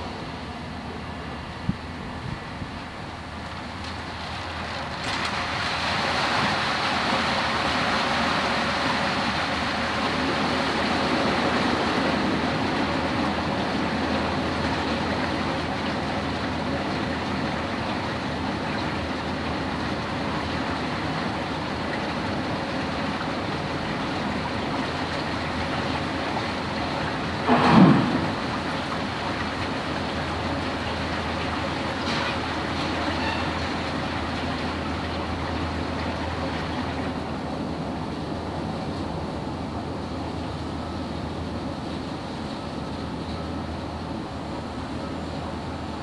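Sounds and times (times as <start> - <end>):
floodwater rushing: 0.0 - 46.0.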